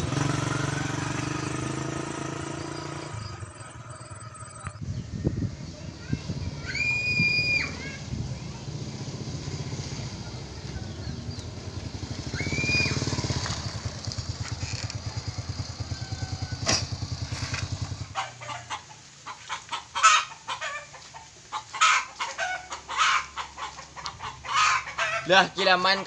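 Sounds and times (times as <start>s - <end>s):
motorcycle engine running: 0.0s - 5.5s, 8.0s - 18.2s
chickens clucking: 18.0s - 26.0s.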